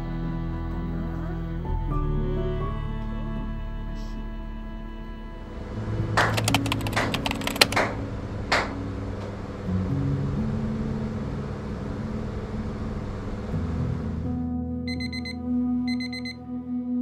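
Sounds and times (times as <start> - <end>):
soft background music: 0.0 - 17.0
sharp hand claps: 6.2 - 7.9, 8.5 - 8.7.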